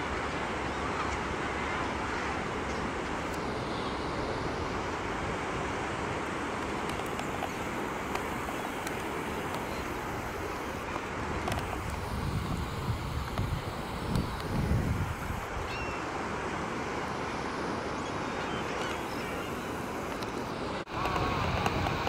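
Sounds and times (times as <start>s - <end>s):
surf breaking on beach: 2.9s - 22.0s
wind buffeting microphone: 6.6s - 15.8s.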